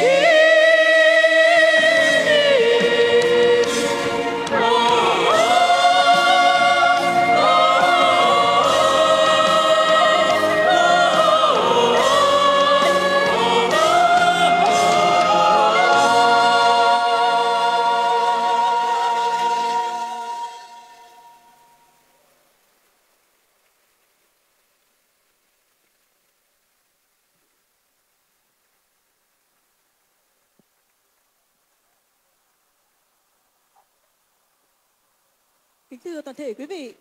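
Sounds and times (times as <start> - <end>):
choir singing long held notes: 0.0 - 22.1.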